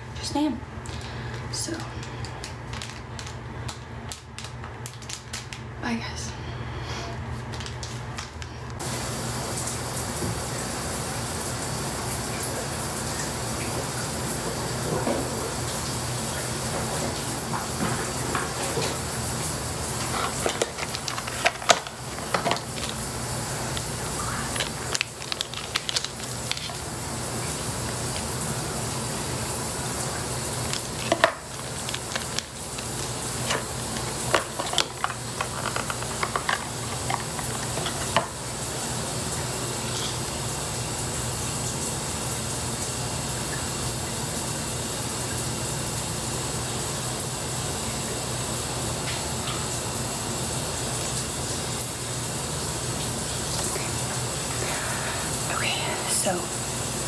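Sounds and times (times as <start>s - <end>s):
wrapper crinkling and tearing: 2.0s - 5.7s, 19.8s - 28.3s, 30.1s - 38.4s
shower water hissing: 8.8s - 57.0s.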